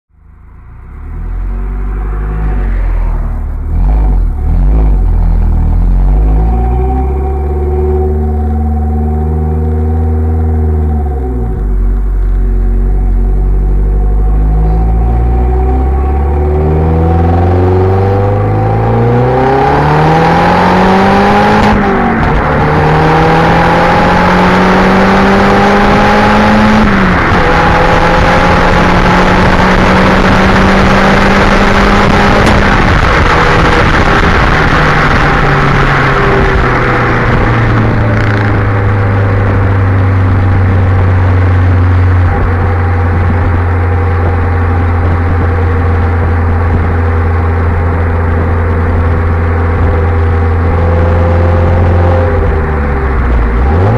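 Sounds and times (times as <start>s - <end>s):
car engine accelerating through gears: 0.4s - 53.9s.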